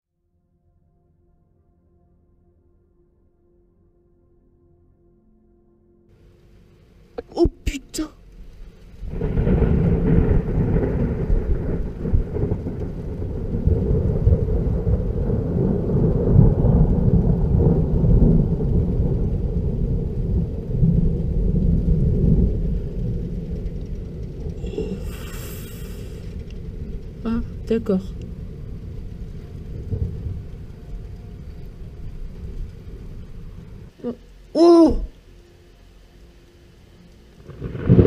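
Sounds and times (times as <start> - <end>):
thunder rumbling: 6.2 - 35.2, 37.3 - 38.0.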